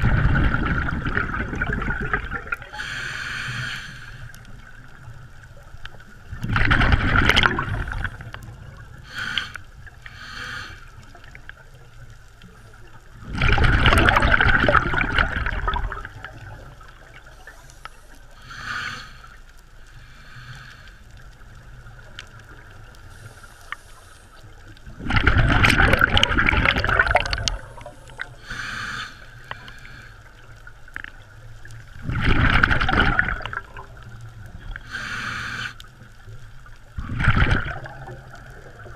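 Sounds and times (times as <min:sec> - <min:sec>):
exhaled bubbles underwater: 0:00.0 - 0:03.0, 0:04.3 - 0:10.4, 0:11.0 - 0:17.7, 0:24.4 - 0:28.8, 0:29.4 - 0:38.9
inhaled air hissing: 0:02.6 - 0:04.4, 0:09.0 - 0:11.2, 0:17.4 - 0:21.1, 0:23.0 - 0:24.6, 0:27.4 - 0:30.3, 0:34.7 - 0:36.0.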